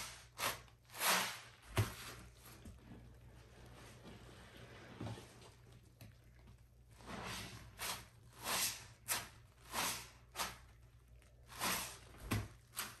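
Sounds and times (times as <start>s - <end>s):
wet foamy sponge squelches: 6.9s - 13.0s.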